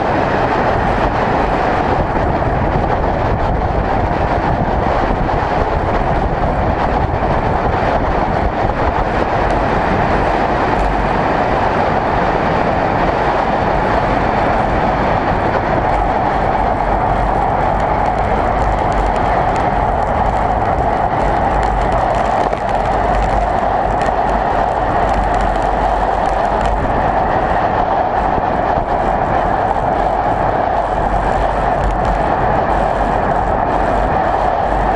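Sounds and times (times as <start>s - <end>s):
bicycle tyre and road rumble: 0.0s - 34.9s
wind over microphone: 0.0s - 34.9s.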